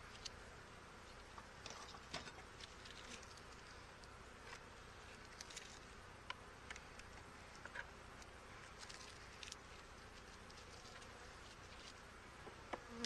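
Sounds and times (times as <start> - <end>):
bees buzzing: 9.6 - 13.0.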